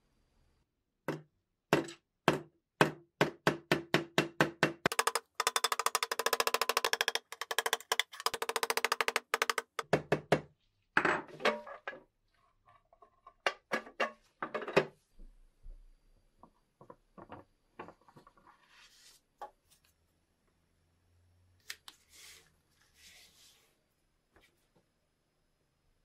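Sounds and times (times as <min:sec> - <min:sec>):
hammer tapping metal punch: 0:01.1 - 0:10.0.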